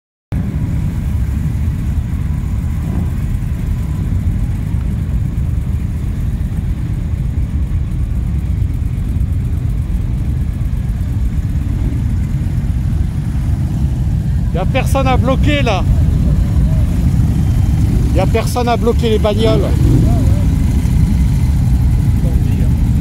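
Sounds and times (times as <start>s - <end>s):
motorcycle engines idling: 0.3s - 23.0s.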